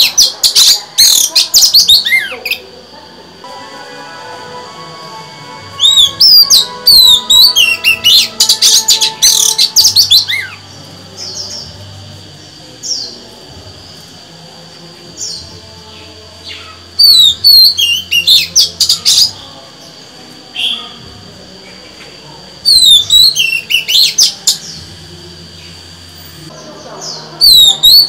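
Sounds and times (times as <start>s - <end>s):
bird singing whistled notes: 5.8s - 10.6s, 17.0s - 19.4s, 22.7s - 24.8s, 27.4s - 28.0s.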